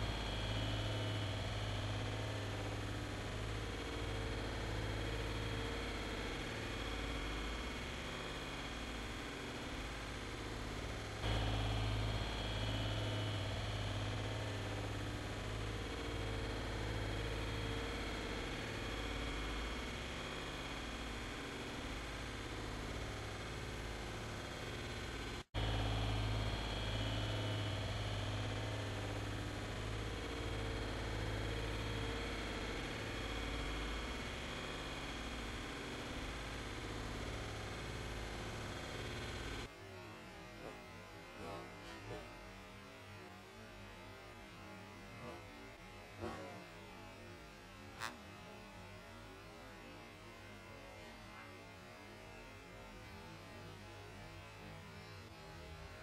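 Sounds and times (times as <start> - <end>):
low electrical hum: 0.0 - 39.7.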